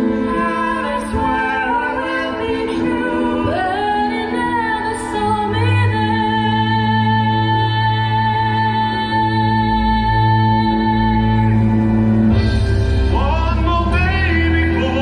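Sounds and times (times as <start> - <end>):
woman singing: 0.0 - 11.9
musical accompaniment: 0.0 - 15.0.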